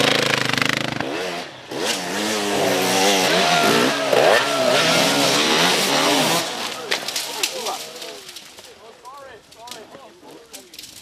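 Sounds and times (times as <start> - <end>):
motorcycle engines revving: 0.0 - 8.7.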